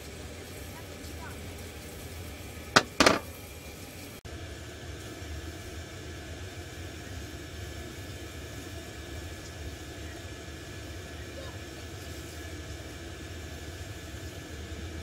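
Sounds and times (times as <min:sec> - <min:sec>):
sharp knock: 0:02.8 - 0:03.2.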